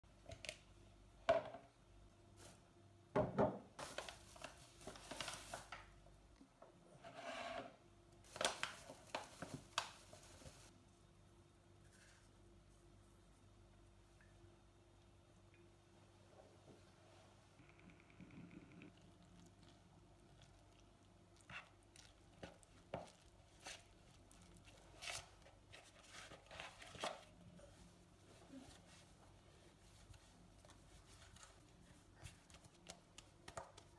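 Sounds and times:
rustling and handling noise: 2.2s - 3.0s, 3.7s - 14.1s, 19.2s - 33.9s
items knocking on countertop: 3.1s - 3.7s
flour bag crinkling: 3.8s - 6.0s, 8.2s - 10.7s.

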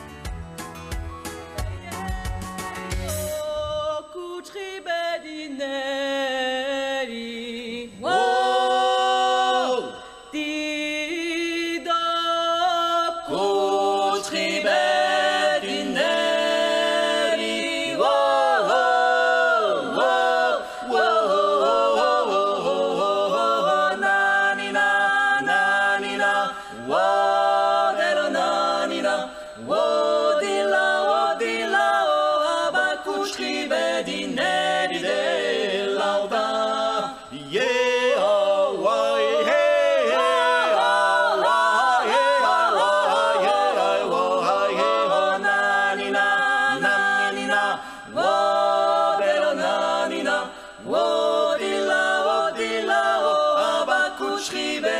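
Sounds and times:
people singing a cappella harmony: 1.8s - 54.9s.

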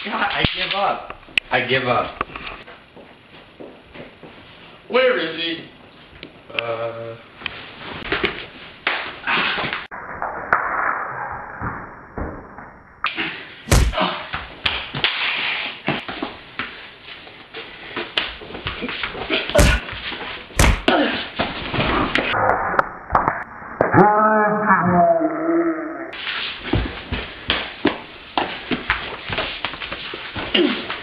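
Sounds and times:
scuffling and thuds: 13.7s - 14.0s, 19.2s - 22.0s
sharp loud slams: 13.7s - 14.0s, 19.6s - 19.9s, 20.6s - 21.0s.

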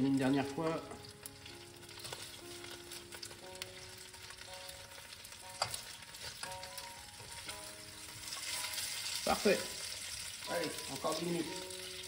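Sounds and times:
chicken sizzling in oil: 0.0s - 12.0s
soft background music: 0.0s - 12.0s
fork clicking against pan: 5.6s - 6.6s.

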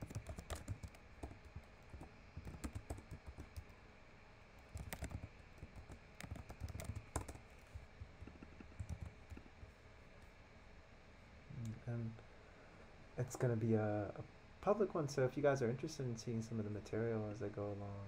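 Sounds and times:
typing on a keyboard: 0.0s - 3.7s, 4.6s - 9.5s.

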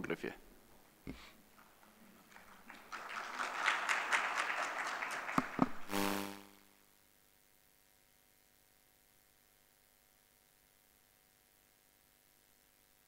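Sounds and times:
faint steady hum: 0.0s - 13.0s
audience applauding: 1.6s - 6.1s.

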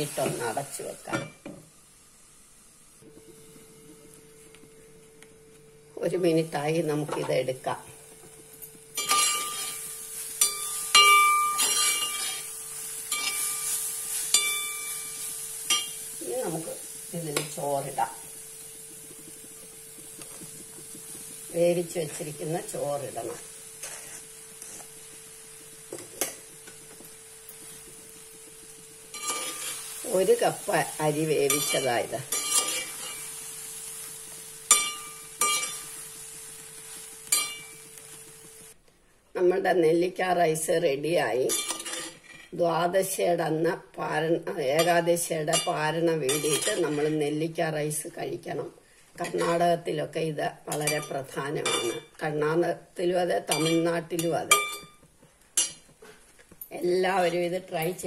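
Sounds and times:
food sizzling faintly: 0.0s - 38.8s
metal spatula clinking brass pot: 9.0s - 9.8s, 10.4s - 12.5s, 13.1s - 16.0s, 29.1s - 29.8s, 31.5s - 33.3s, 34.7s - 35.9s, 37.3s - 37.8s, 41.5s - 42.2s, 44.8s - 47.1s, 53.5s - 55.0s, 55.6s - 55.8s.

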